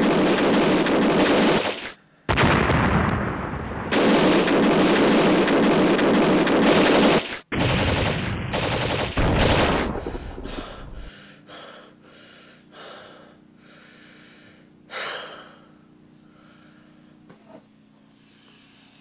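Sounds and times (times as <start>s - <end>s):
faint steady hum: 0.0s - 19.0s
person gasping for breath: 10.0s - 17.0s.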